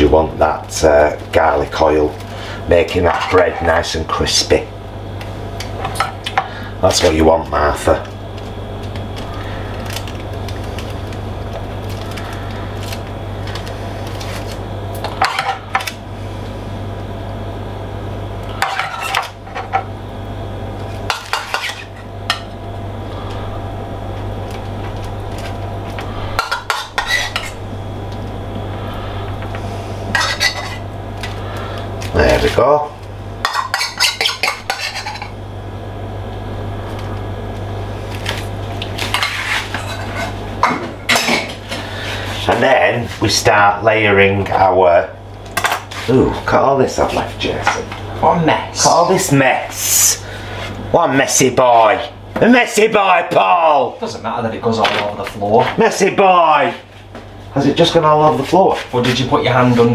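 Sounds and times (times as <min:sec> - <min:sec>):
steady low hum: 0:00.0 - 0:59.9
metal spoon scraping ceramic bowl: 0:26.4 - 0:27.6, 0:33.5 - 0:35.3.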